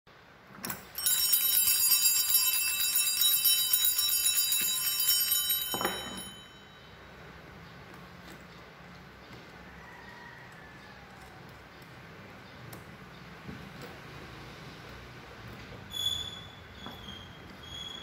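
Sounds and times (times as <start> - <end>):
altar bells ringing: 0.9 - 7.2.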